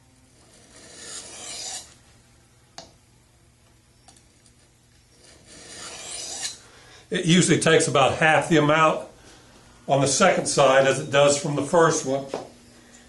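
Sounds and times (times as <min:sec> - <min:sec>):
knife scraping on sharpening plate: 0:00.7 - 0:01.9, 0:05.2 - 0:06.6.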